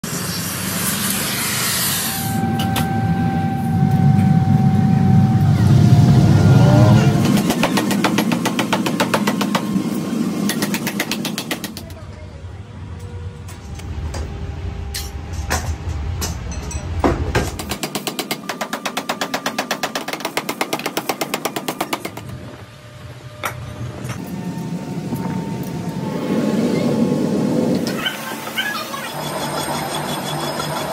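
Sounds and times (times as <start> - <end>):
cutting torch hissing: 0.0 - 2.6
furnace rumbling: 2.1 - 30.9
power hammer striking hot steel: 7.2 - 11.9.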